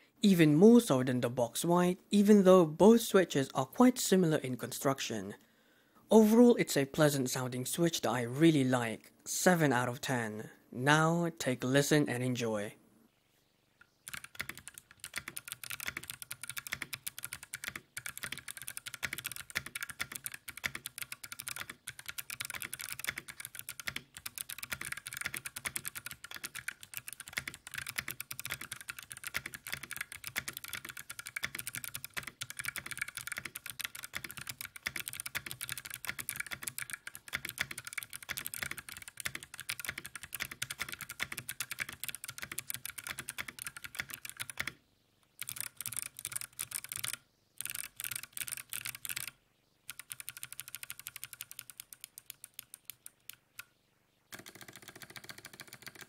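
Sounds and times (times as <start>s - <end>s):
fast clicky keyboard typing: 14.1s - 44.8s, 45.4s - 53.5s, 54.3s - 56.0s.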